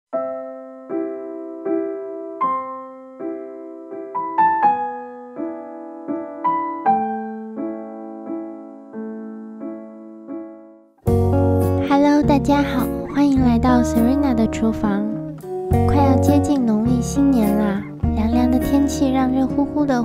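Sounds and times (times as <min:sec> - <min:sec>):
gentle piano music: 0:00.1 - 0:20.0.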